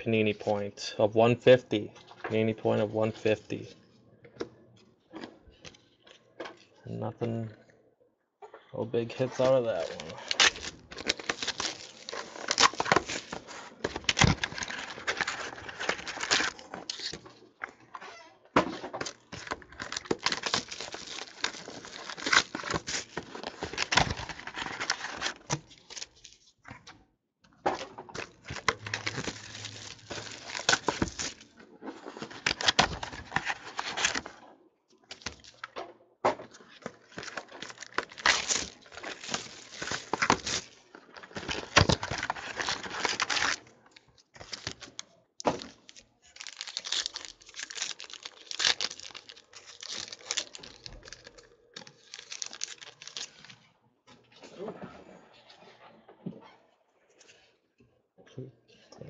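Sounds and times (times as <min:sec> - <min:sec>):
cardboard and cards rustling: 0:09.2 - 0:17.9, 0:18.6 - 0:27.0, 0:27.6 - 0:34.4, 0:35.0 - 0:35.8, 0:36.4 - 0:53.6
foil wrapper crinkling and tearing: 0:09.4 - 0:17.2, 0:18.9 - 0:26.5, 0:28.1 - 0:34.2, 0:35.1 - 0:35.7, 0:37.0 - 0:53.6.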